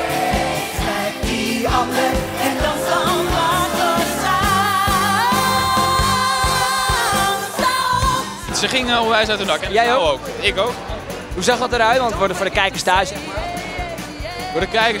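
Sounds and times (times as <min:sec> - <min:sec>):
woman singing: 0:00.0 - 0:08.5, 0:13.0 - 0:15.0
backing chorus singing: 0:00.0 - 0:08.6
upbeat band playing: 0:00.0 - 0:15.0.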